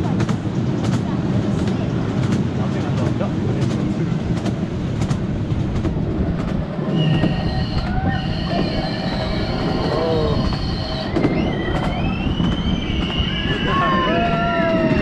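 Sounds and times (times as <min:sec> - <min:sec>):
train wheels rumbling on track: 0:00.0 - 0:15.0
high wheel squeal: 0:06.9 - 0:14.4.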